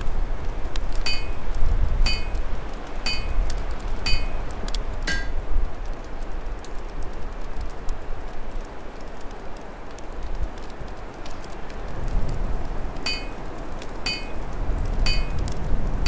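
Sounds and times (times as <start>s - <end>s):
open fire crackling: 0.0s - 16.0s
storm wind rumble: 0.0s - 16.0s
sharp metallic clinks: 1.0s - 1.5s, 2.1s - 3.4s, 4.0s - 4.5s, 5.1s - 5.4s, 13.1s - 13.4s, 14.1s - 14.5s, 15.1s - 15.5s.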